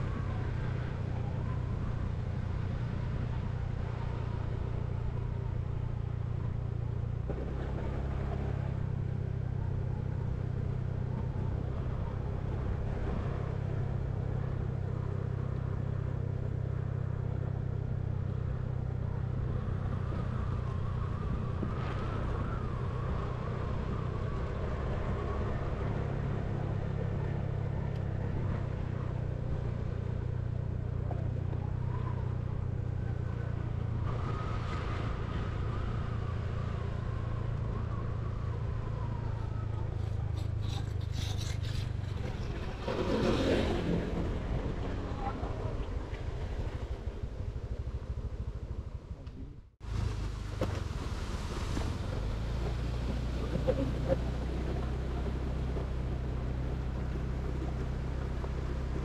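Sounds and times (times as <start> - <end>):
road and wind noise: 0.0 - 59.0
vehicle engine droning: 0.0 - 59.0.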